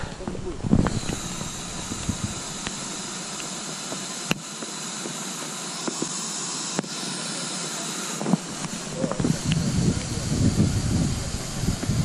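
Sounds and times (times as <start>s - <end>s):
air hissing from inflatable boat: 0.0s - 12.0s
sharp clicks: 0.1s - 4.7s, 8.2s - 10.1s.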